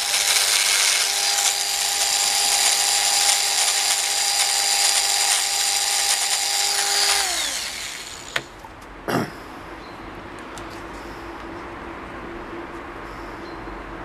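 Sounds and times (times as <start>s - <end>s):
power tool grinding whine: 0.0s - 8.6s.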